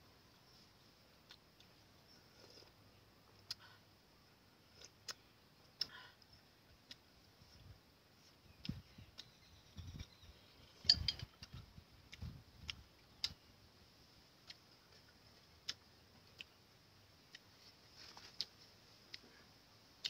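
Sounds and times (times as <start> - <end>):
quiet steady hiss: 0.0 - 20.0
soft eating noises: 0.2 - 20.0
faint sharp clicks: 5.8 - 7.0.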